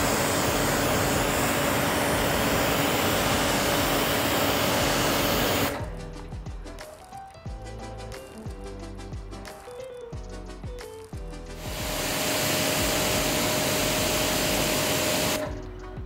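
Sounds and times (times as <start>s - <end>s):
pressure washer spraying: 0.0s - 6.2s, 11.5s - 15.6s
background music: 0.0s - 16.0s.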